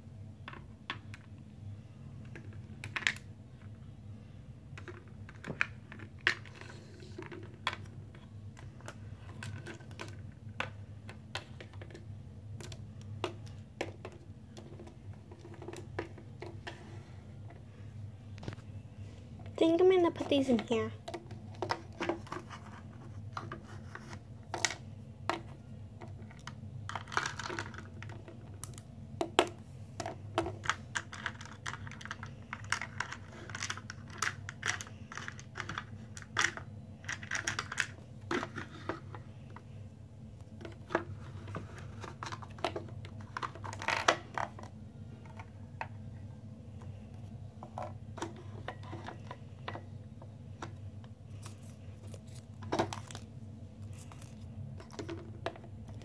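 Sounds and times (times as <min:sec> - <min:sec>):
steady low hum: 0:00.0 - 0:56.0
plastic toys clattering on wood: 0:24.5 - 0:28.7, 0:29.3 - 0:39.2, 0:40.7 - 0:44.7, 0:53.9 - 0:56.0.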